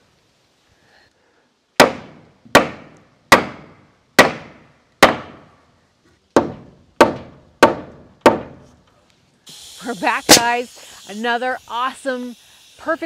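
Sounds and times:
hammer striking wood: 1.8 - 5.5, 6.4 - 8.6.

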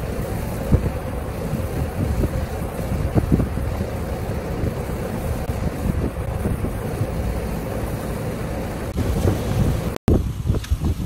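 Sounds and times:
water spraying from a hose: 0.0 - 11.0
wind buffeting microphone: 0.0 - 11.0.

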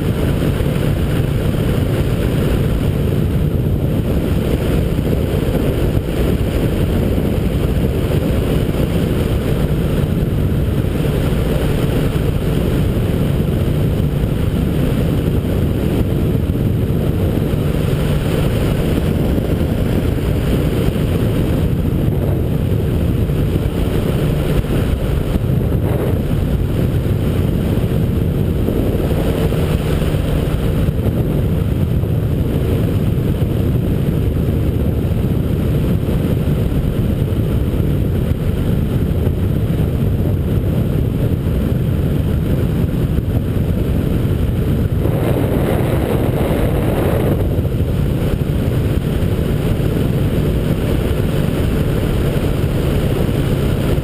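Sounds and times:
engine and propeller running: 0.0 - 54.0
wind buffeting microphone: 0.0 - 54.0.

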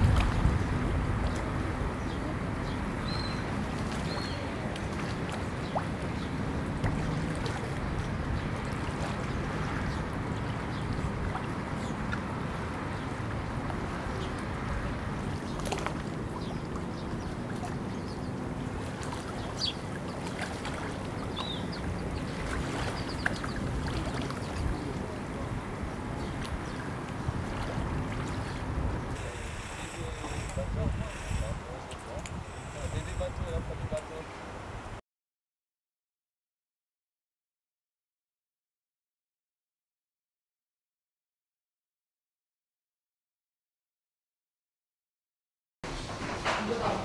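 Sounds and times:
wind noise: 0.0 - 3.8, 25.6 - 35.0
water noise: 0.0 - 35.0.

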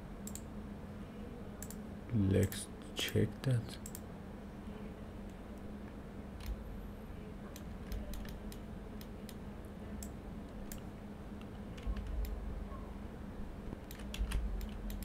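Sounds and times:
steady low hum: 0.0 - 15.0
keyboard and mouse clicks: 0.2 - 0.5, 1.6 - 1.8, 3.8 - 4.0, 7.5 - 9.4, 10.0 - 12.4, 13.7 - 15.0.

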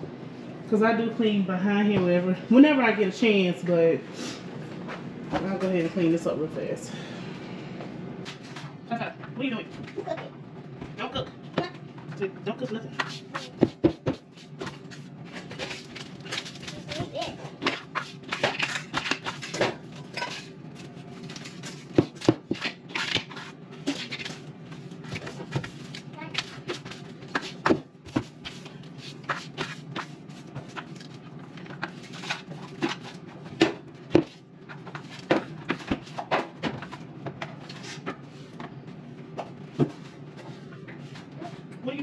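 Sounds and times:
steady low hum: 0.0 - 42.0
broom sweeping hard floor: 26.4 - 30.8.

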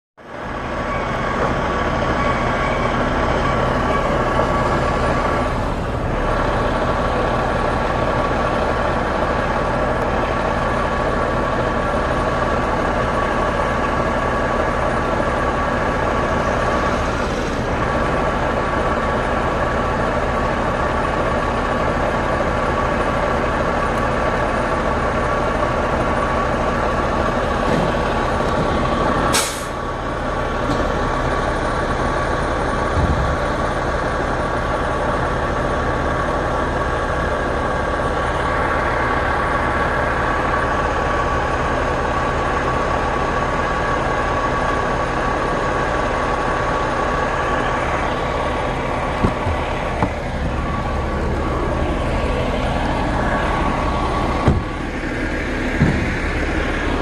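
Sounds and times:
constant mechanical whine: 0.2 - 57.0
garbage truck diesel rumble: 0.2 - 57.0.

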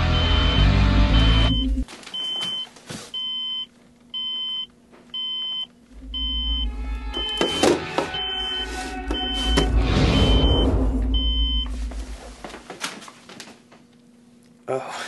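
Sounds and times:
digital alarm clock beeping: 4.2 - 11.7
low rumble: 5.9 - 7.4, 8.2 - 12.6.

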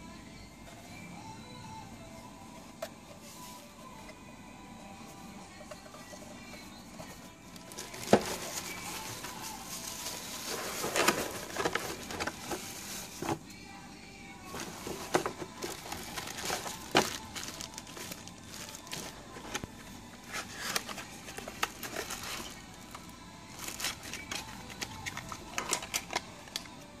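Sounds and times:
music: 0.0 - 27.0
plastic packaging crinkling: 7.5 - 13.5, 14.5 - 26.8.

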